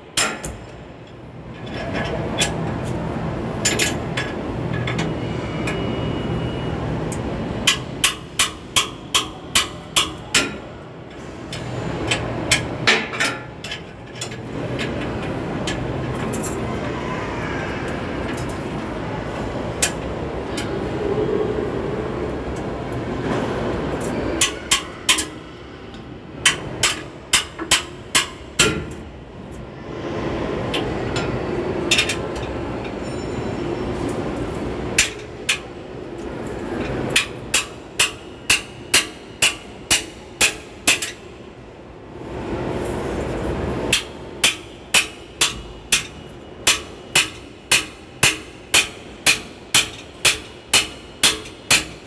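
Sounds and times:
hammer striking metal: 7.7s - 10.6s, 24.4s - 25.4s, 26.4s - 29.0s, 37.1s - 41.3s, 43.9s - 52.0s
low rumbling noise: 9.0s - 27.4s, 28.0s - 51.1s.

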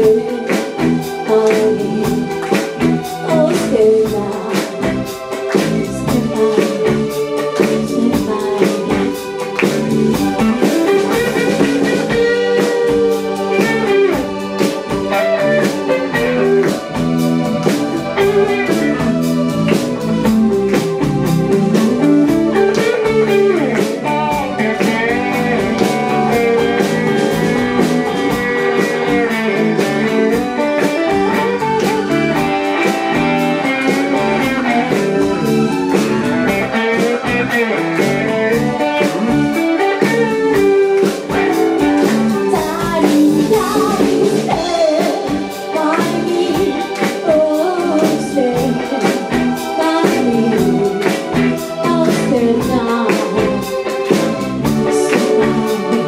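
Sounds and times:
woman singing: 0.0s - 9.2s, 42.0s - 53.7s, 54.6s - 56.0s
live band playing pop: 0.0s - 56.0s.

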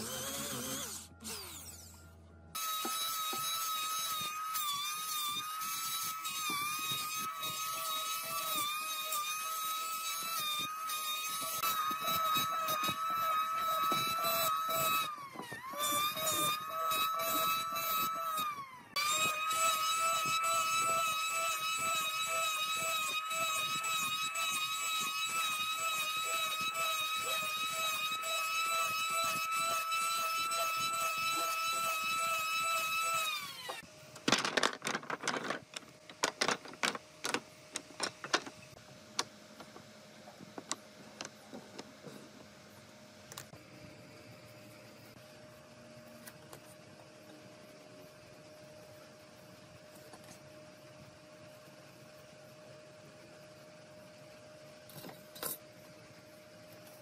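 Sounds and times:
electric planer whining: 0.0s - 33.9s.

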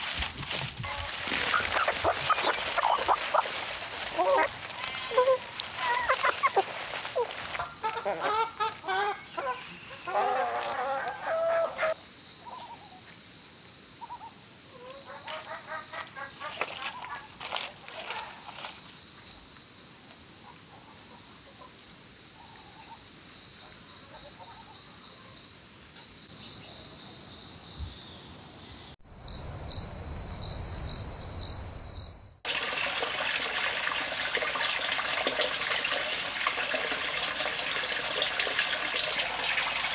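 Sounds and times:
insects chirping: 0.0s - 32.6s
chickens clucking: 0.9s - 12.0s
rooster: 4.2s - 12.0s.

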